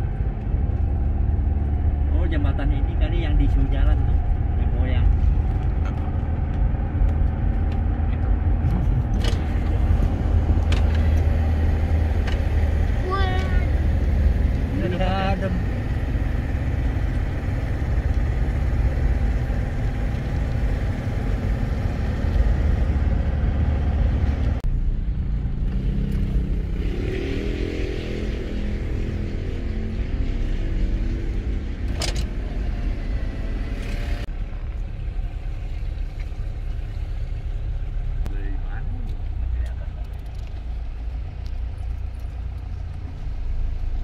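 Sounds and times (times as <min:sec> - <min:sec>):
car engine and tyres rumbling: 0:00.0 - 0:44.0
pitched engine hum: 0:00.0 - 0:44.0.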